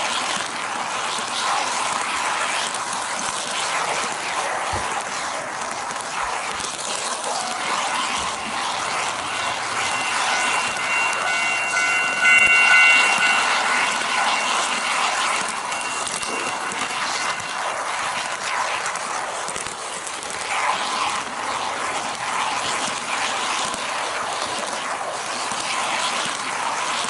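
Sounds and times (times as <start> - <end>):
crossing signal electronic tone: 7.3 - 18.6
train wheels rattling on rails: 7.3 - 21.4.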